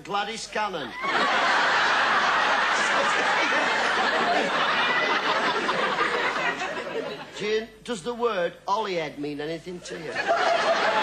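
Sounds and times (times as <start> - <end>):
audience laughing: 0.9 - 7.4, 10.0 - 11.0.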